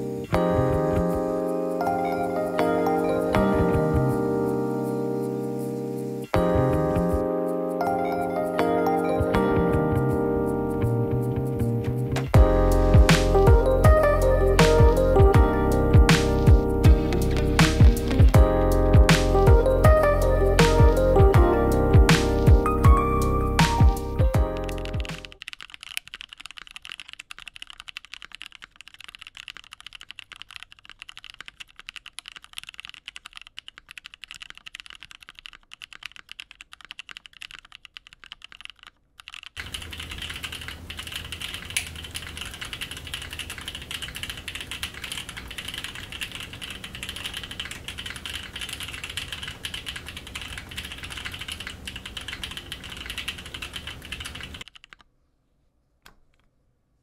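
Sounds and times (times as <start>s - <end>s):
typing on mechanical keyboard: 22.2s - 55.1s.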